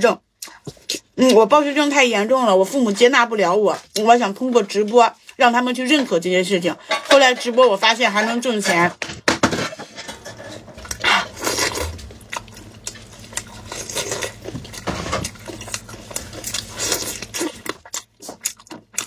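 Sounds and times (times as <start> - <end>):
meat squelching and ripping: 10.8 - 19.0.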